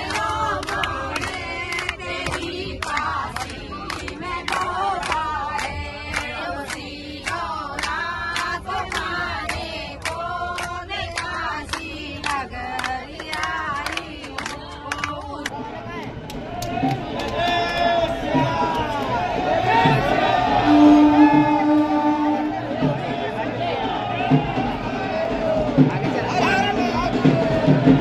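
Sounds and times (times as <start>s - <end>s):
steady hand-clapping: 0.0s - 20.1s
crowd singing devotional song: 0.0s - 28.0s.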